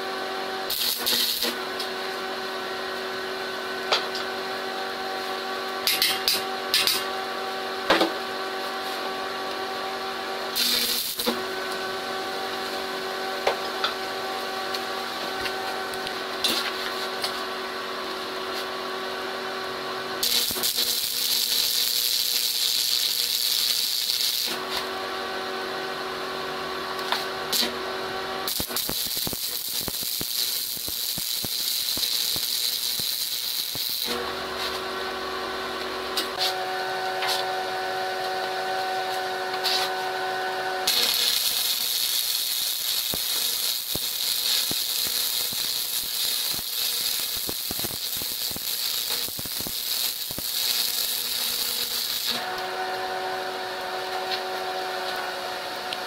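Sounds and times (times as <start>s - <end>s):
arc welding crackling hiss: 0.7s - 1.6s, 10.6s - 11.4s, 20.2s - 24.8s, 28.4s - 34.8s, 39.1s - 40.0s, 40.8s - 52.4s.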